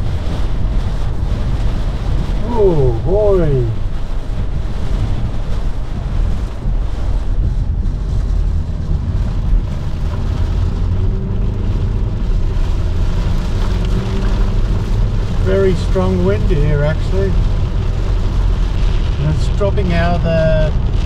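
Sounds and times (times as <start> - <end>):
wind buffeting microphone: 0.0 - 15.7
faint car engine hum: 0.0 - 21.0.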